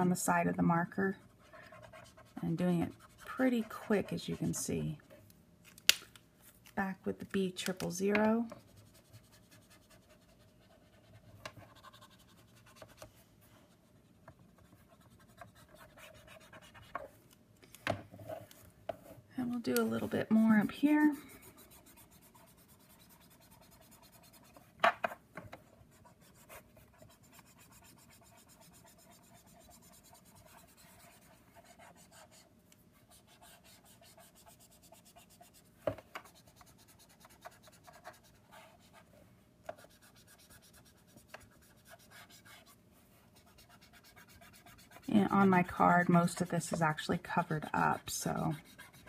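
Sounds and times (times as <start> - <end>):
marker nib scratching on card: 14.6 - 17.0, 19.7 - 24.7, 25.9 - 32.4, 33.0 - 39.0, 39.7 - 42.8, 43.4 - 45.4, 47.4 - 49.0.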